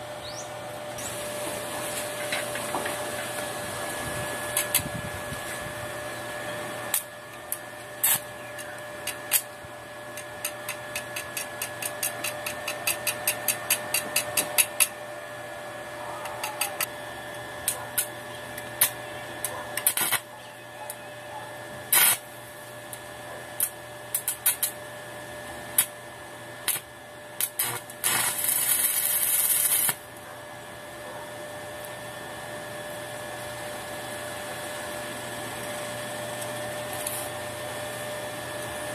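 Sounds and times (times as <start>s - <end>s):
steady hum: 0.0s - 38.9s
welding arc crackling: 1.8s - 5.5s, 6.8s - 15.0s, 17.5s - 20.3s, 21.8s - 22.5s, 23.6s - 24.8s, 25.6s - 26.0s, 26.6s - 30.1s.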